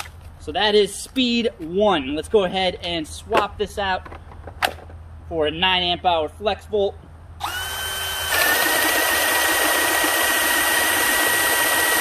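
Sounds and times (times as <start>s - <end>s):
drill boring into wood: 7.4s - 12.0s.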